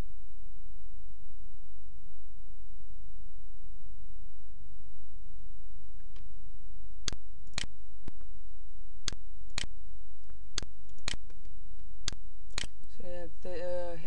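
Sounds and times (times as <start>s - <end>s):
steady low hum: 0.0s - 14.0s
sharp clicks: 7.1s - 8.3s, 9.1s - 12.9s.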